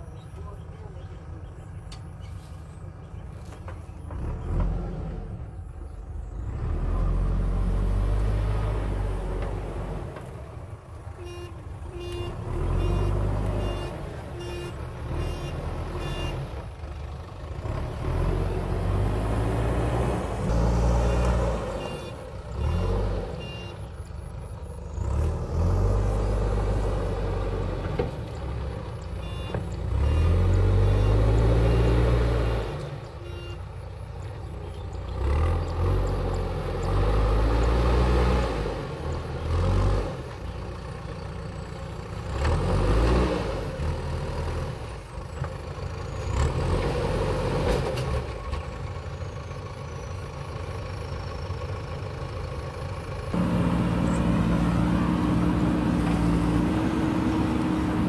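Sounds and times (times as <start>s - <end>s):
diesel engine revving: 4.0s - 58.0s
short beeps: 29.2s - 29.6s, 30.9s - 33.6s.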